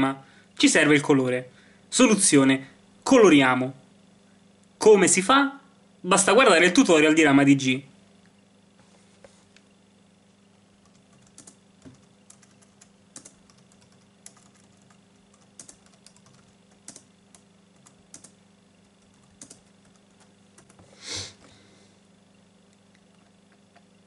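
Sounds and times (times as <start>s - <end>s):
keyboard typing: 10.8s - 20.9s
short hiss: 20.9s - 21.4s.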